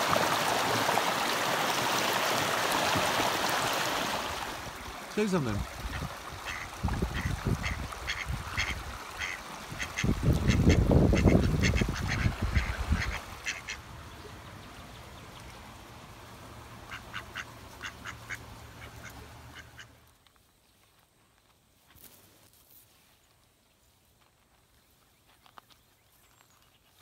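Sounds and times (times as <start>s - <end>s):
ducks quacking: 5.8s - 13.9s, 16.8s - 19.9s.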